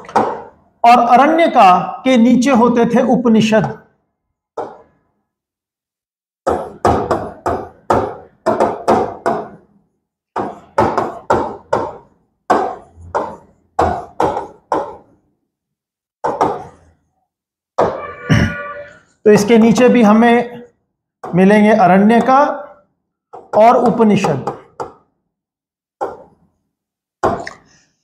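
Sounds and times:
writing taps on a board: 4.6 - 4.9, 10.4 - 15.1.

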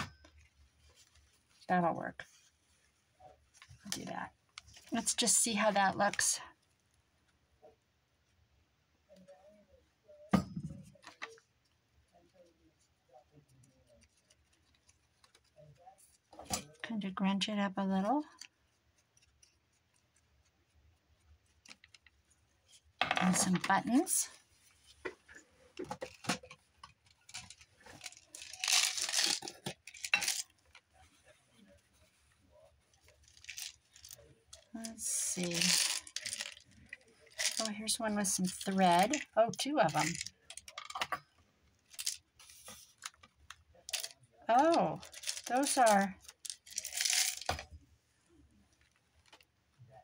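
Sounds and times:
paper rustling: 18.4 - 34.7, 41.9 - 47.6.

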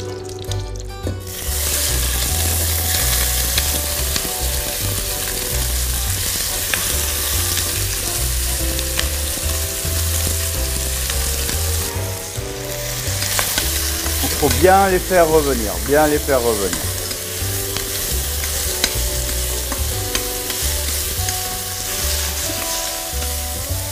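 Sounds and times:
prawn shells sizzling in pan: 1.3 - 23.9
utensil clicking against pan: 16.7 - 23.4.

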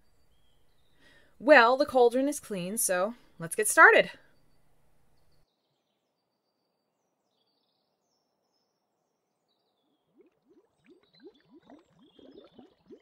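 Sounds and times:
faint bird chirps: 0.0 - 1.4, 4.1 - 13.0
liquid gurgling and bubbling: 10.1 - 13.0.

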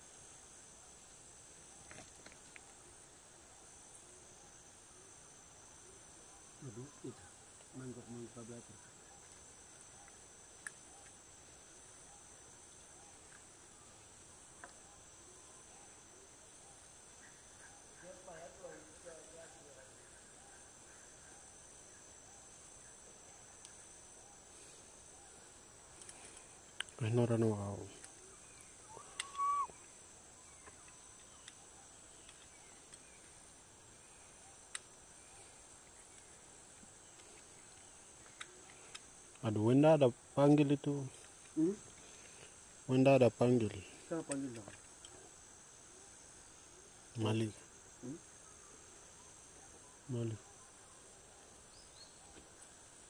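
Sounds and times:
insects droning: 0.0 - 53.0
faint clicks: 9.2 - 11.2, 25.9 - 27.0, 27.9 - 30.0, 30.6 - 31.6, 37.1 - 39.5
short whistled call: 28.9 - 29.8.

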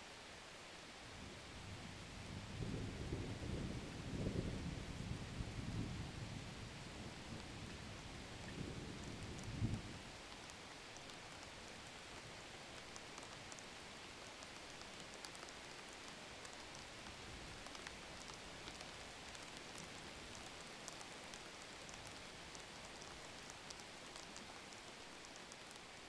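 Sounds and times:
faint steady hiss: 0.0 - 26.0
light ticks: 8.4 - 26.0.

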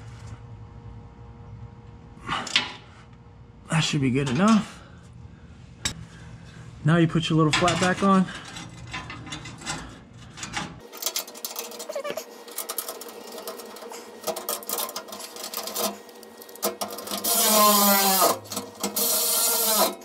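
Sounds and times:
metal flap and bolts rattling: 7.4 - 17.2.

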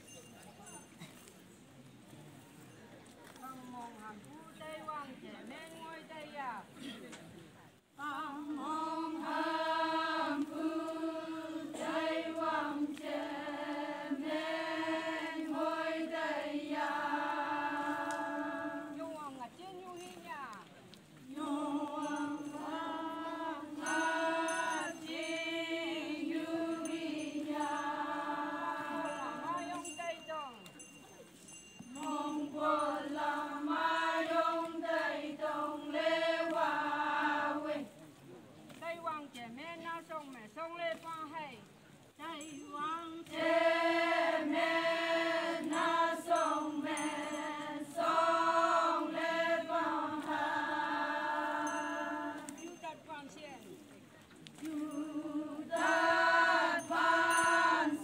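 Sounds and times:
women's chorus singing folk song: 8.0 - 19.6, 21.2 - 30.2, 31.8 - 39.2, 42.5 - 53.1, 54.4 - 58.0.

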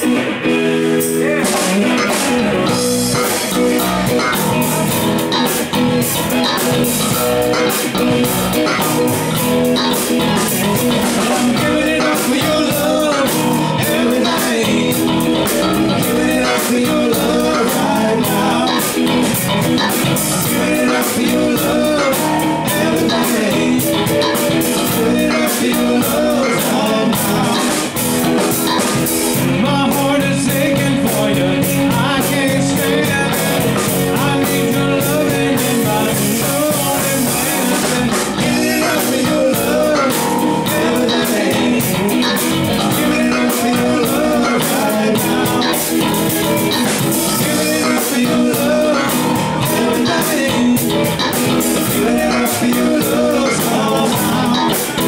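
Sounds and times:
drum kit: 0.0 - 55.0
electric guitars: 0.0 - 55.0.

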